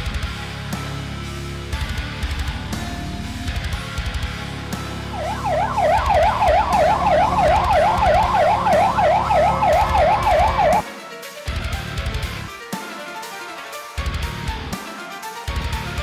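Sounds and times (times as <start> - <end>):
fire engine siren yelping: 5.1 - 10.9.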